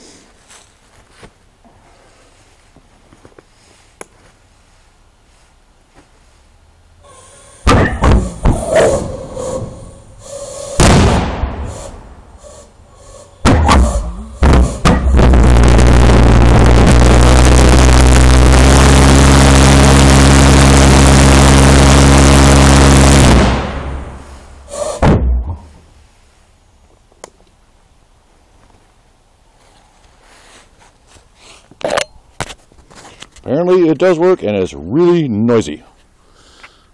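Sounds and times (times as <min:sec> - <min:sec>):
pulse jet droning: 0:07.0 - 0:25.8
pulse jet bangs: 0:07.7 - 0:09.8, 0:10.8 - 0:12.3, 0:13.4 - 0:24.3.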